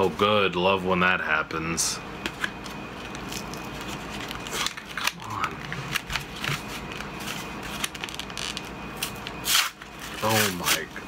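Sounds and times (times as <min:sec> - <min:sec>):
plastic packaging crinkling: 0:03.0 - 0:11.0.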